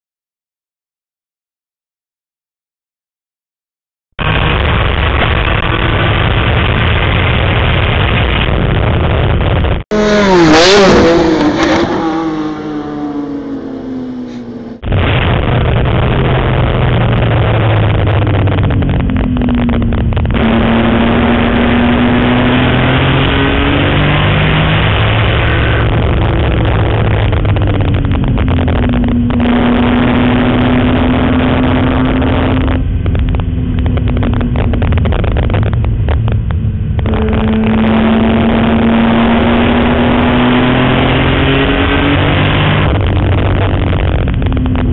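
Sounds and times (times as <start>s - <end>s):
race car passing at full throttle: 9.9s - 14.8s
car engine heard from cabin: 10.0s - 14.8s.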